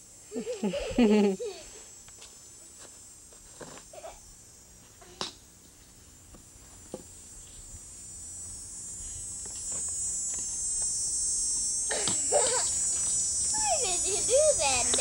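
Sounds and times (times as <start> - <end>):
high-pitched buzz: 6.9 - 15.0.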